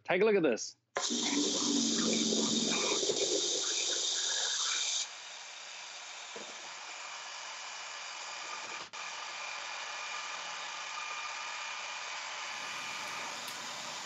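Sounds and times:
pressure washer whine: 0:01.0 - 0:05.0, 0:12.5 - 0:14.0
rushing hiss of water: 0:12.6 - 0:14.0.

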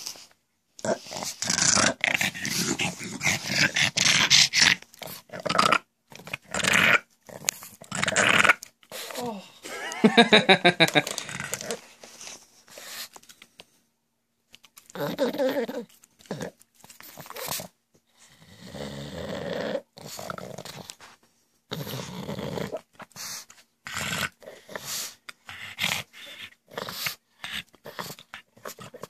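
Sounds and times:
dog snorting: 0:00.8 - 0:09.2, 0:21.7 - 0:29.0.

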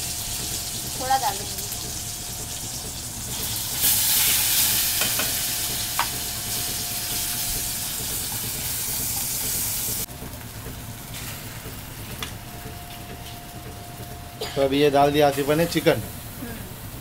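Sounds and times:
paste sizzling in hot oil: 0:00.0 - 0:10.1.

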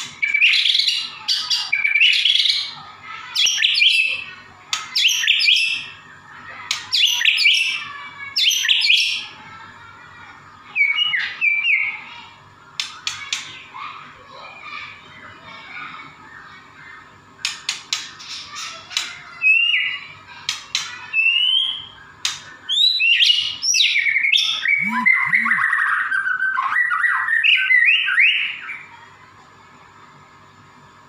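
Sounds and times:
songbird singing: 0:20.9 - 0:28.9.

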